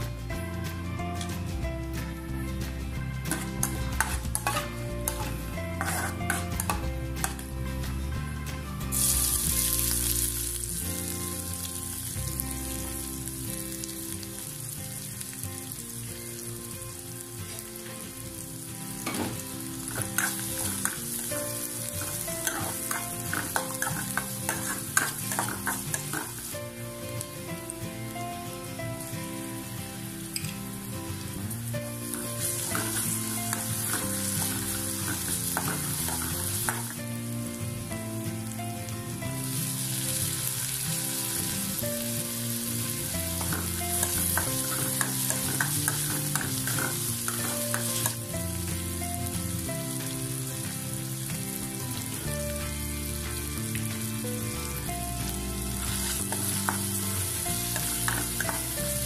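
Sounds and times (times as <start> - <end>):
quiet background music: 0.0 - 59.0
food sizzling in hot oil: 2.1 - 59.0
steel ladle scraping pan: 3.3 - 7.4, 22.0 - 26.3.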